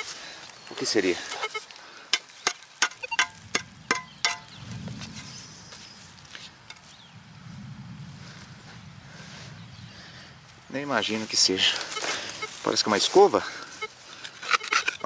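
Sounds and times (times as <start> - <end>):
soil rustling under gloved hand: 0.0 - 7.1, 10.9 - 15.0
sharp ringing taps: 2.4 - 4.5.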